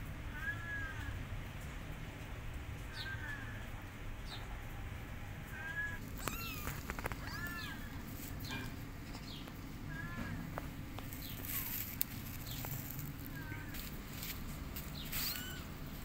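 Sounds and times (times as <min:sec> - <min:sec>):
kitten meowing: 0:05.6 - 0:08.0, 0:13.2 - 0:13.9, 0:15.1 - 0:15.8.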